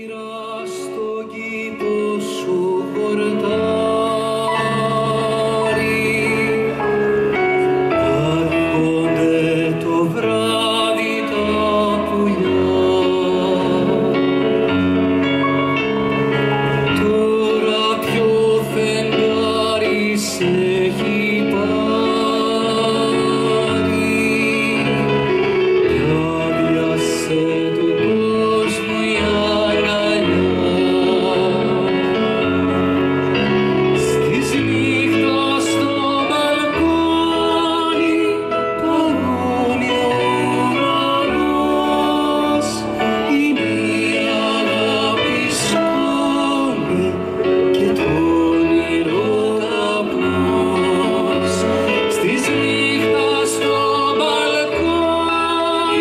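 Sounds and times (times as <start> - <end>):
electric keyboard: 0.0 - 56.0
man singing: 0.0 - 56.0.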